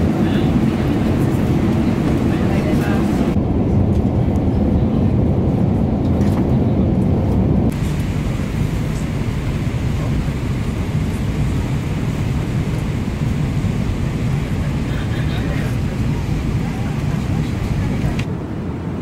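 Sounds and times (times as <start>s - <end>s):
airliner cabin rushing noise: 5.4s - 18.4s.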